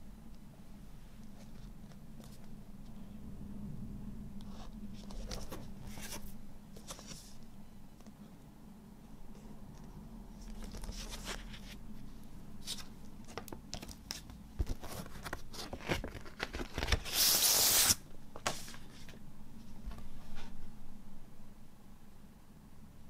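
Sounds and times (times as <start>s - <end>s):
paper and cardboard rustling: 4.6s - 7.4s, 10.4s - 20.6s.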